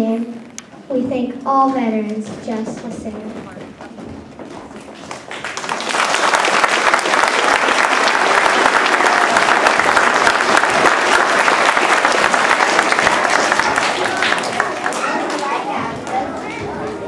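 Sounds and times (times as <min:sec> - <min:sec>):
children applauding: 0:04.9 - 0:17.0.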